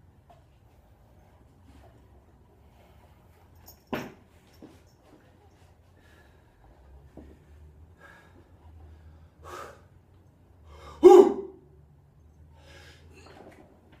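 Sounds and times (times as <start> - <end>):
person breathing hard: 7.9 - 10.0, 10.6 - 11.1, 12.5 - 13.3
sharp loud gasp: 10.7 - 11.5.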